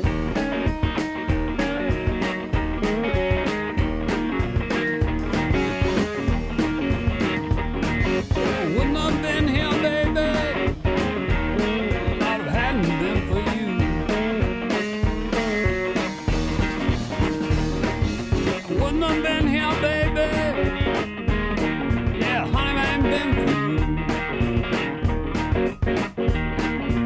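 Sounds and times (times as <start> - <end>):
rock music with electric guitar: 0.0 - 27.0.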